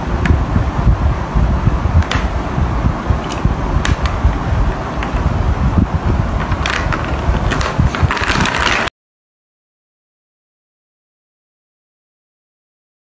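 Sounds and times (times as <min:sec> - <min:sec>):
low rumbling noise: 0:00.0 - 0:08.9
chess pieces clicking on wood: 0:06.4 - 0:08.9.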